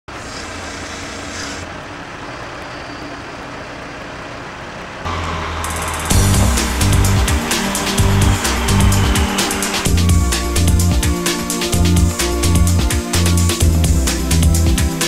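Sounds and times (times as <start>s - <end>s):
crane engine humming: 0.2s - 15.0s
music with a regular beat: 5.2s - 15.0s.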